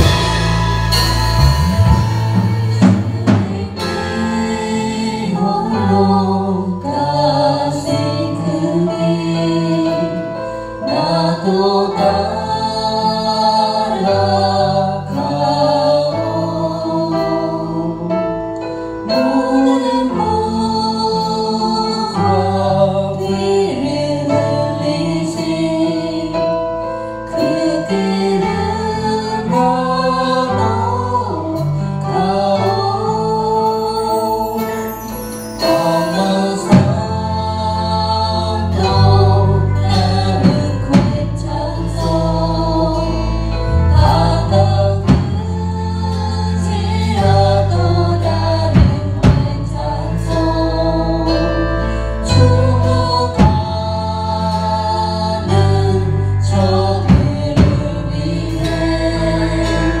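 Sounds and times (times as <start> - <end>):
drum hits: 0.0 - 4.4
bass line: 0.0 - 6.2, 35.8 - 60.0
acoustic guitar: 0.0 - 60.0
keyboard: 0.0 - 60.0
voices singing together: 2.4 - 60.0.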